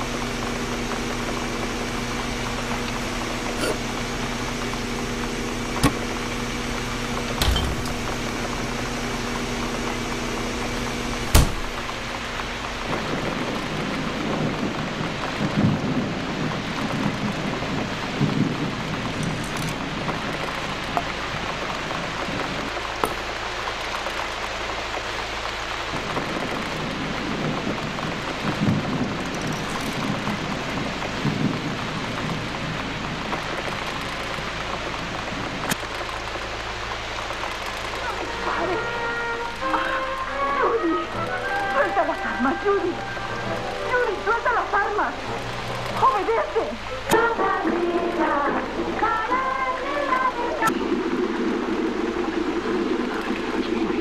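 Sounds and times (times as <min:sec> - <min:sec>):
low rumbles: 0:00.0 - 0:50.2
rain-like hiss: 0:00.0 - 0:54.0.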